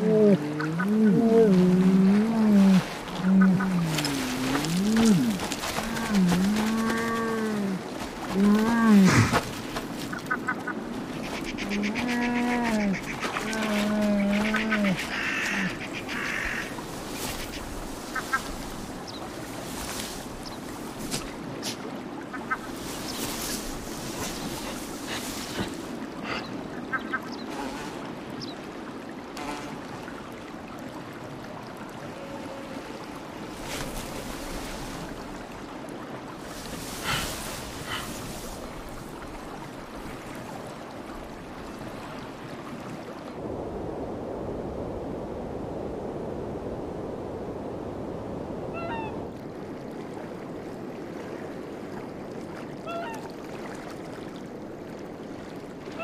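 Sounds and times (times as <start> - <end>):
long low animal call: 0.0 - 9.4, 11.6 - 16.7
lake water lapping: 0.0 - 43.5, 48.8 - 56.0
rustle: 0.0 - 53.4
wind: 0.0 - 56.0.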